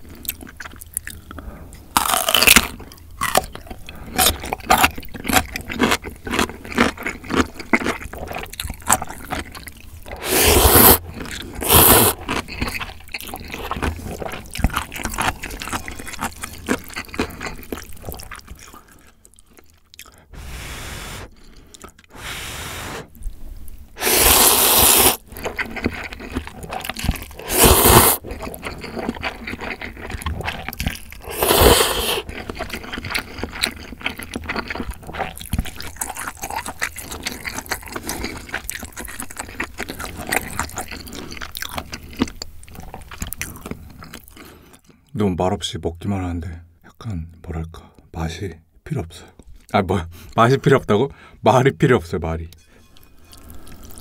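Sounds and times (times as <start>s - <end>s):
wet chewing: 0.1s - 20.3s, 22.9s - 45.0s
noodles slurping: 10.1s - 18.3s, 20.0s - 23.2s, 24.0s - 42.0s.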